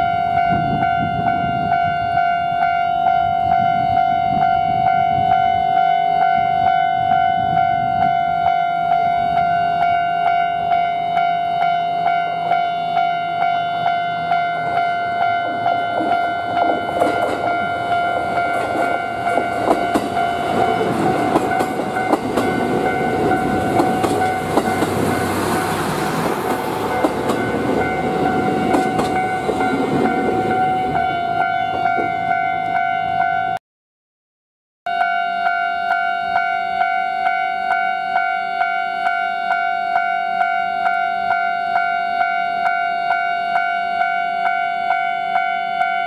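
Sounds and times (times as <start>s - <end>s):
level-crossing alarm ringing: 0.0s - 33.6s, 34.9s - 46.0s
diesel train rumble: 12.0s - 33.3s
wheel clatter over rail joints: 15.4s - 30.9s.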